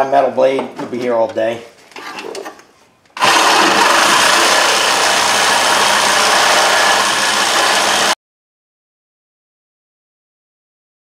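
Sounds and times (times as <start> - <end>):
reciprocating saw cutting steel: 3.2 - 8.2.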